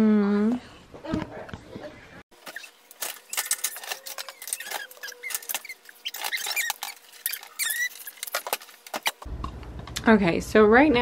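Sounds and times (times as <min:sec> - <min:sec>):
short high squeaks: 0:02.4 - 0:09.2.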